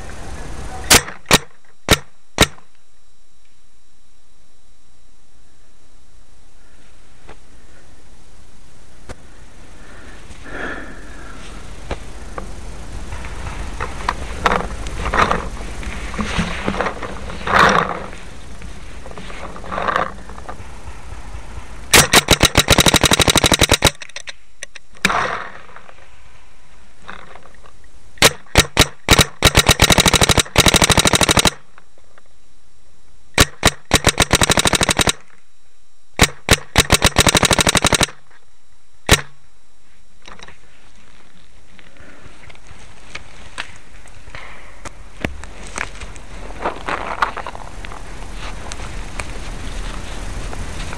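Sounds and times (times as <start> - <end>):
steady noise: 0.0 - 50.9
paintball marker rapid firing: 0.9 - 2.6, 21.9 - 25.4, 28.2 - 31.6, 33.4 - 35.2, 36.2 - 38.2, 39.0 - 39.3.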